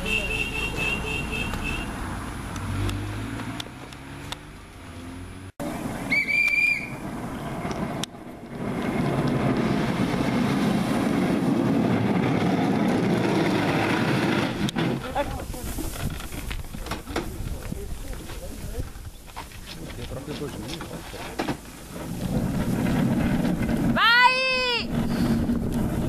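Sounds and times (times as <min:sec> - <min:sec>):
small car engine passing: 0:00.6 - 0:15.5, 0:21.8 - 0:26.0
loud rushing noise: 0:05.6 - 0:15.4
short whistle: 0:06.0 - 0:07.0.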